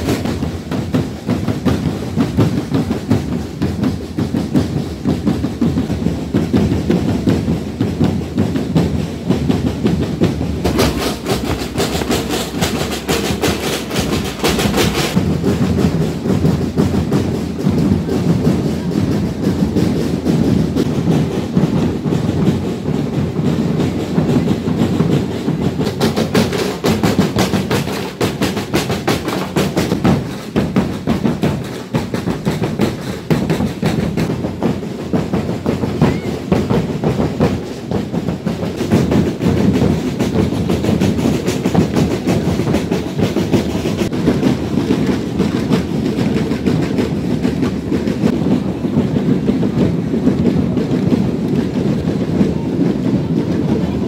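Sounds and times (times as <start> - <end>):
drum band beating: 0.0 - 54.0.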